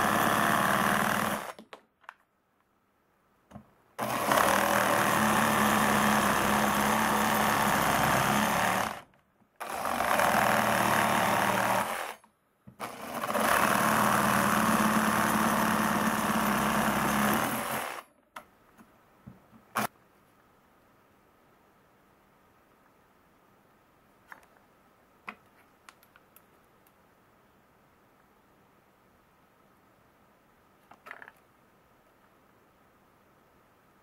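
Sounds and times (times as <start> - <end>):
reciprocating saw cutting wood: 0.0 - 1.6, 4.0 - 12.2, 12.8 - 18.1
small clicks: 25.3 - 27.0.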